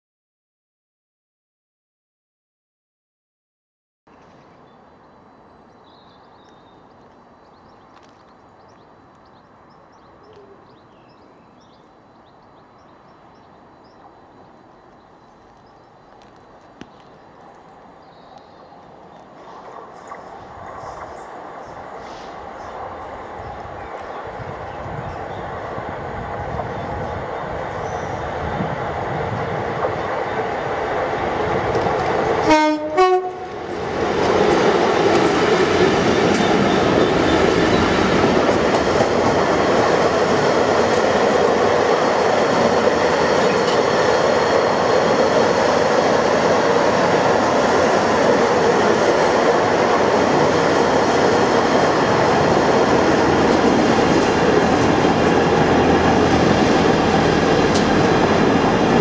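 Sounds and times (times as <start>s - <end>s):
diesel locomotive approaching: 4.2s - 59.0s
train horn blasts: 32.4s - 33.6s
wheels clacking over rail joints: 33.5s - 59.0s.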